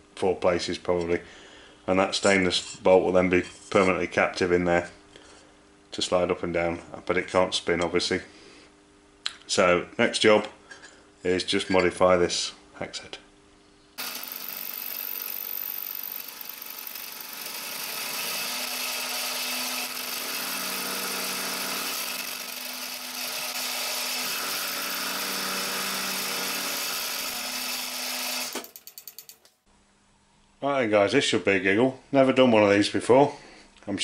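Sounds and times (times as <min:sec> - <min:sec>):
milling machine whine: 0:14.0 - 0:29.2.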